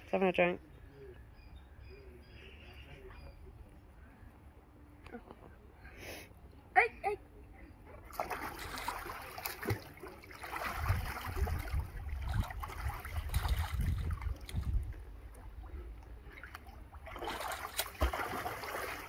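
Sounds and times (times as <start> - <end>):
water splashing and sloshing: 7.9 - 19.0.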